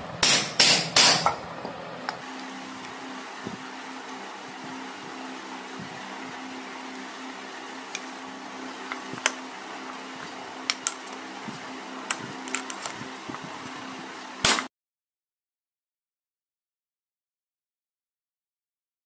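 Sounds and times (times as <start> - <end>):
steady background hum: 0.0 - 14.7.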